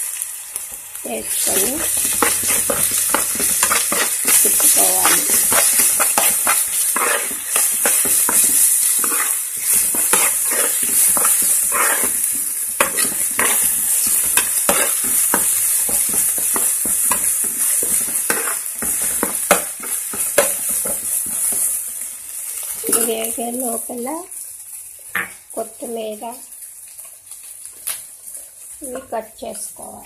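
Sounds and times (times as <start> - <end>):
vegetables sizzling in hot oil: 0.0 - 30.0
utensil scraping a metal pan: 1.4 - 15.5.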